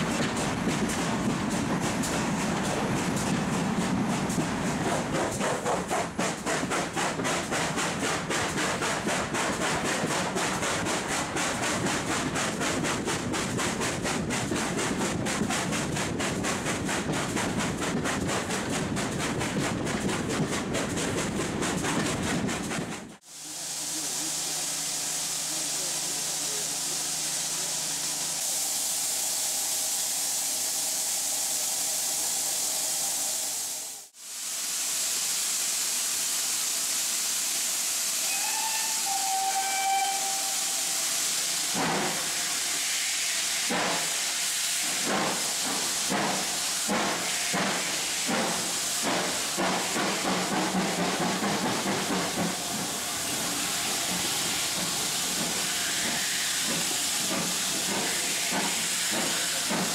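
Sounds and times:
steam locomotive exhaust beats: 0.0s - 59.9s
steam train rushing hiss: 0.0s - 59.9s
steam whistle: 38.2s - 41.1s.

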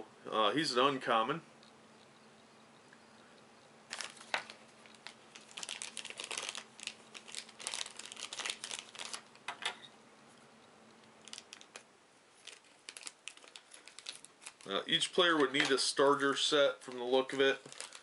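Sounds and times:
plastic bags crinkling: 3.9s - 9.6s, 11.0s - 18.0s.

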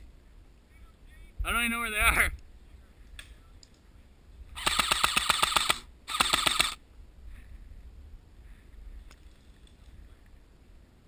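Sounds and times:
airsoft rifle full-auto bursts: 4.6s - 6.8s.

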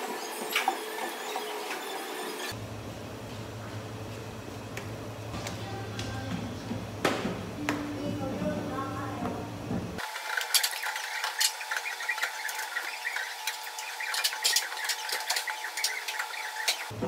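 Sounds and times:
faint steady hum: 2.5s - 10.0s.

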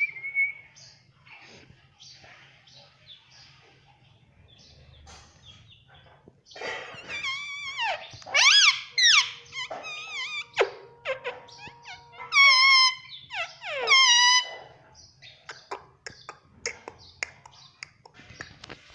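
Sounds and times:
parakeet squawking: 6.6s - 14.7s.

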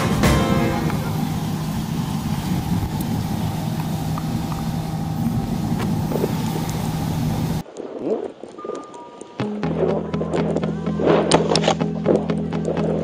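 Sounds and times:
car engine hum: 0.0s - 7.6s
road noise: 0.0s - 7.6s.

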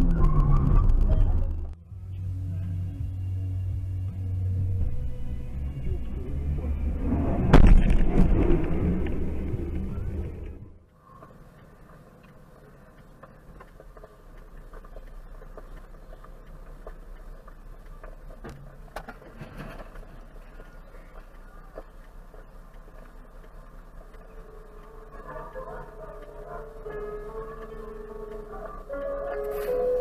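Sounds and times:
loud vehicle noise: 0.0s - 11.6s
vehicle driving rumble: 0.0s - 30.0s
faint clicks: 7.7s - 30.0s.

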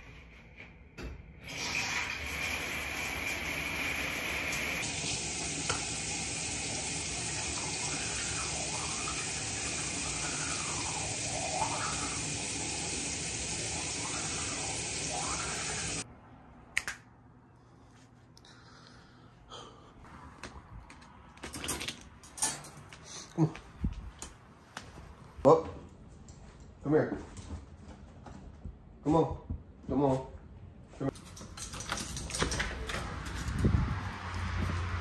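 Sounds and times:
faucet running into sink: 1.5s - 16.0s.

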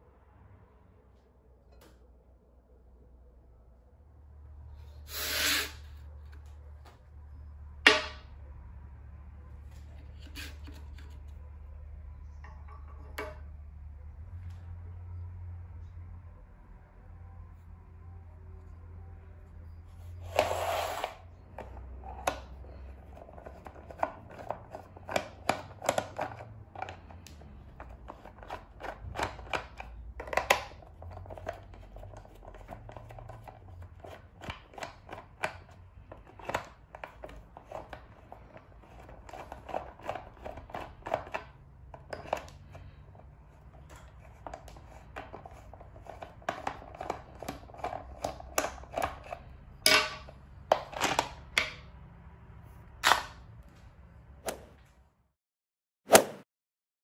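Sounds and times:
plastic clacks: 21.5s - 51.9s.

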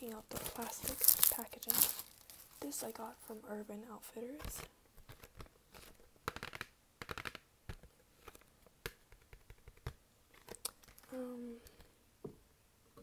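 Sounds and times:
nails tapping on cardboard: 5.0s - 10.0s.

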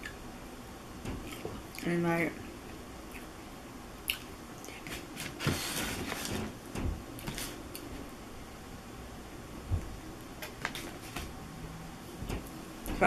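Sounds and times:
mouth clicks and smacks: 4.0s - 4.9s
person chewing food: 4.0s - 5.1s.

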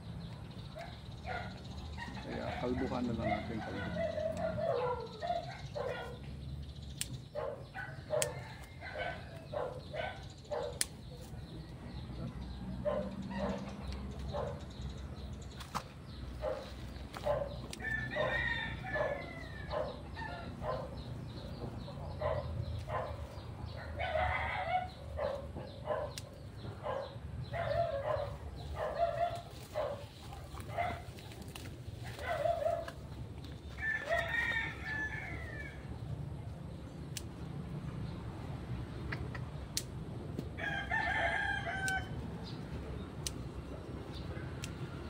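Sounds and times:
roosters crowing: 17.2s - 31.1s, 32.0s - 37.0s, 40.4s - 43.0s.

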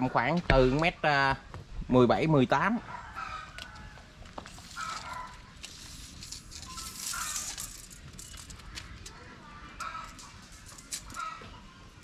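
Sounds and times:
chickens clucking: 2.8s - 5.6s, 8.4s - 12.0s.

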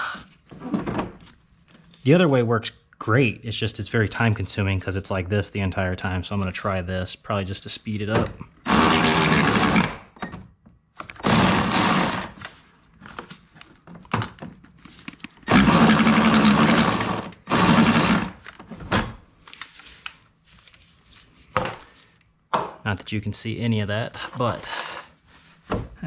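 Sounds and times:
cordless ratchet whirring: 8.6s - 10.0s, 11.2s - 12.4s, 15.5s - 18.4s.

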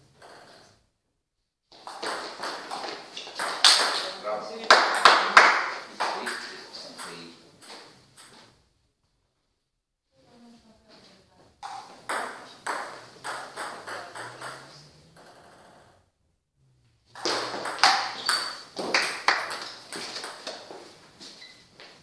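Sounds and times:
table tennis ball hits: 1.8s - 8.4s, 11.6s - 15.6s, 17.1s - 20.8s.

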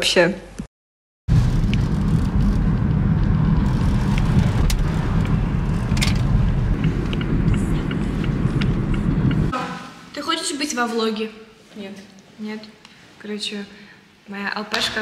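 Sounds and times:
car road and engine rumble: 1.3s - 9.5s.

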